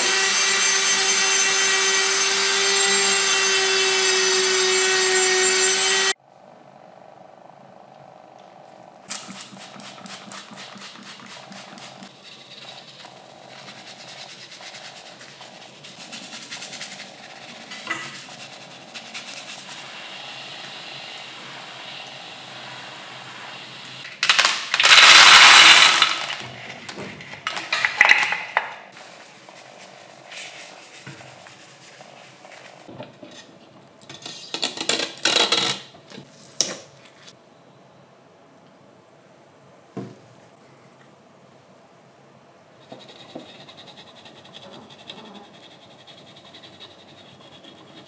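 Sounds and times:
bristle brush scrubbing: 0:09.1 - 0:20.1, 0:29.0 - 0:32.9.

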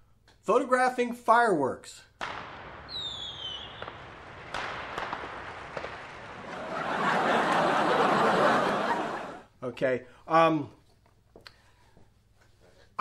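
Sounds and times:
dense rush of fireworks noise: 0:02.2 - 0:09.4
fireworks cracking: 0:02.2 - 0:09.4.

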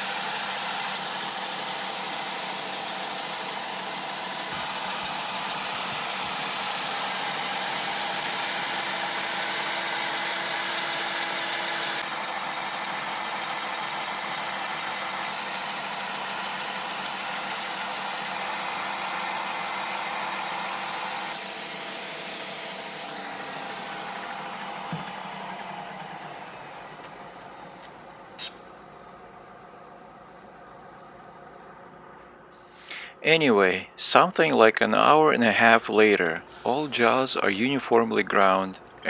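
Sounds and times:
router grinder whining and grinding: 0:00.0 - 0:28.4.

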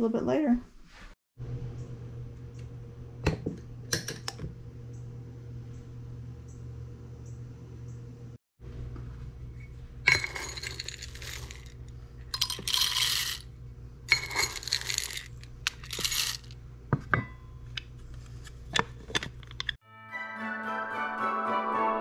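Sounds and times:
coffee beans rattling into grinder: 0:10.1 - 0:13.5, 0:14.1 - 0:16.6.

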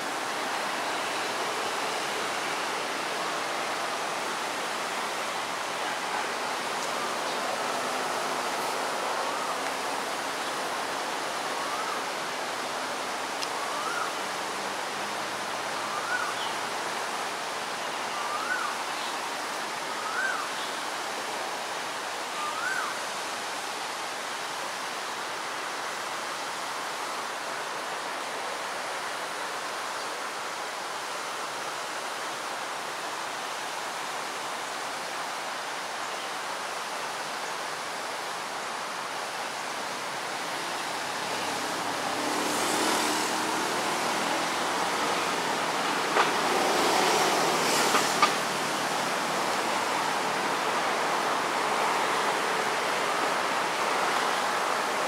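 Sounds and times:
rushing background noise: 0:00.0 - 0:55.0.

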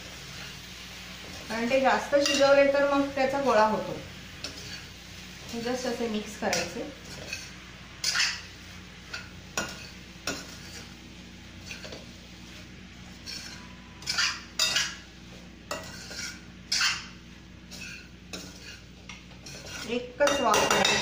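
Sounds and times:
metal spoon scraping a pan: 0:02.1 - 0:03.7, 0:04.4 - 0:04.9, 0:06.5 - 0:08.5, 0:09.1 - 0:11.0, 0:11.6 - 0:15.0, 0:15.7 - 0:21.0.

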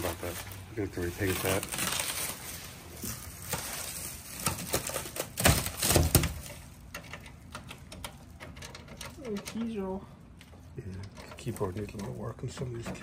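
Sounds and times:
plastic wrapping crinkling: 0:00.0 - 0:09.3.

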